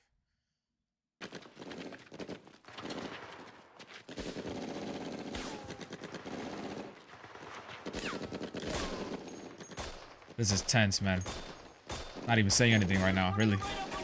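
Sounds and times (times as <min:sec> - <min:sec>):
automatic and rifle gunfire: 0:04.1 - 0:10.4, 0:11.2 - 0:14.0.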